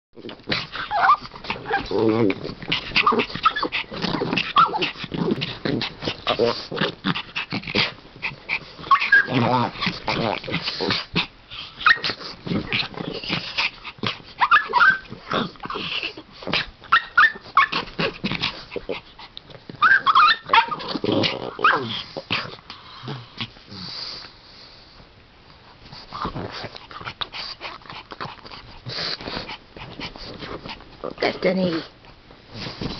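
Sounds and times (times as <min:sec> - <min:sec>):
dogs growling: 0:00.2 - 0:24.3, 0:26.0 - 0:32.9
small dogs whining and yipping: 0:00.7 - 0:02.2, 0:03.0 - 0:04.9, 0:08.8 - 0:10.0, 0:11.6 - 0:12.2, 0:14.4 - 0:16.2, 0:16.8 - 0:17.9, 0:19.7 - 0:21.9
paws scuffling and knocking: 0:25.8 - 0:32.9.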